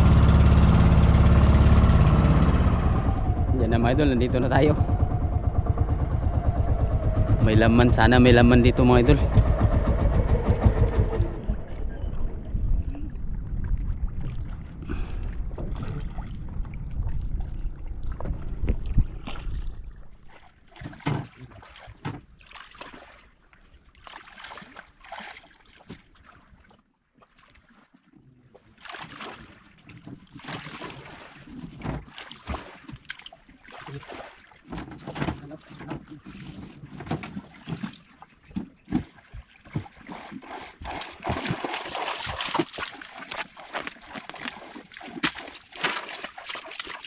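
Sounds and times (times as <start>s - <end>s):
engine low rumble: 0.0s - 20.5s.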